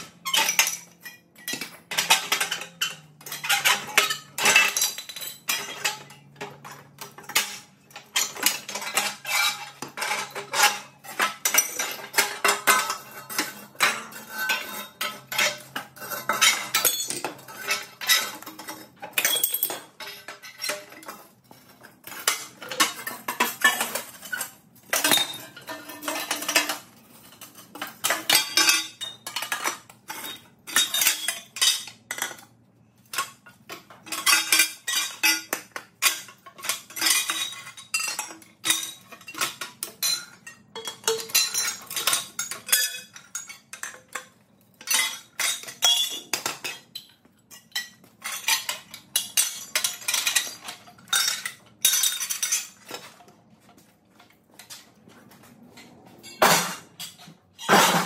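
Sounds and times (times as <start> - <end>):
metal tubing clattering on concrete: 0.0 - 58.0.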